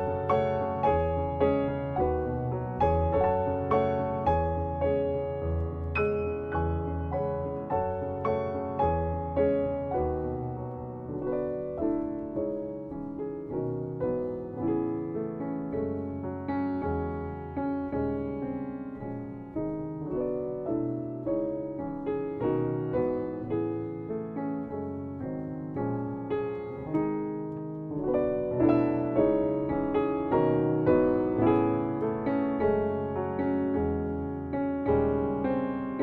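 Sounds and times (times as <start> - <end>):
piano playing: 0.0 - 36.0.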